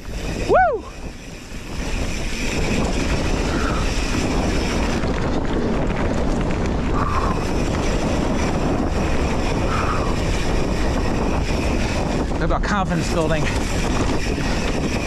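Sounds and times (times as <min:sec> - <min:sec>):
bike tyres rolling on dirt trail: 0:00.0 - 0:15.0
wind rushing over microphone: 0:00.0 - 0:15.0.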